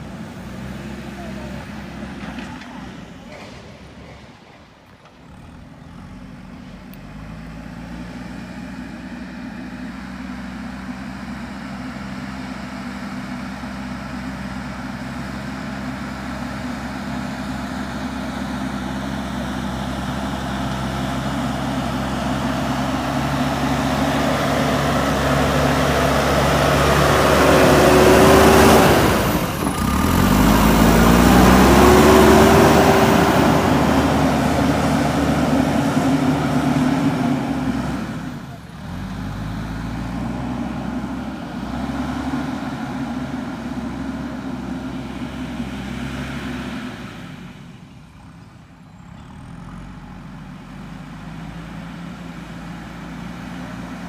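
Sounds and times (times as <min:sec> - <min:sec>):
backhoe diesel engine under load: 0:00.0 - 0:54.0.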